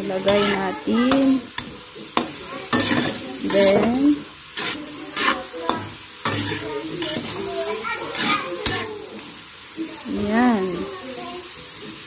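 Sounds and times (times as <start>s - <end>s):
metal utensil scraping a wok: 0.0s - 9.5s
frying sizzle: 0.0s - 12.0s.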